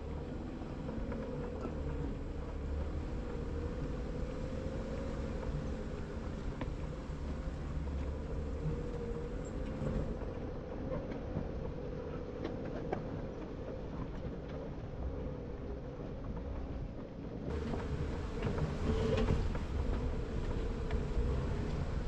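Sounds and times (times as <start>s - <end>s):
engine whining at crawl: 0.0s - 12.6s, 17.4s - 22.0s.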